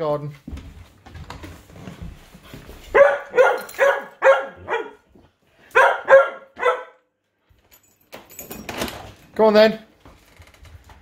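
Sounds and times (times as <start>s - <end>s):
dog barking: 2.9s - 5.1s, 5.7s - 7.1s.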